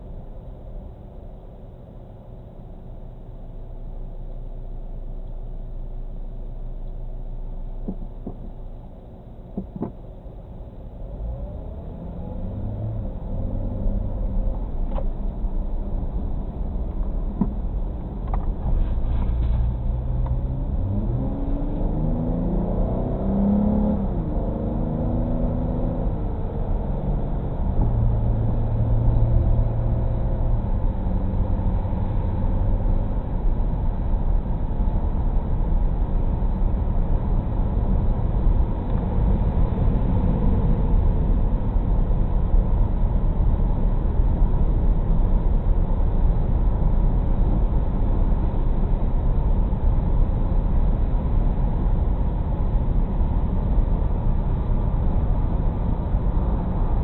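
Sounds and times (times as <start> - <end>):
car engine running: 23.9 - 57.0.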